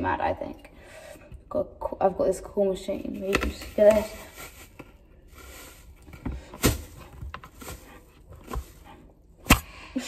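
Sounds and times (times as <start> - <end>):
kitchen items knocking and clicking: 3.1 - 5.0.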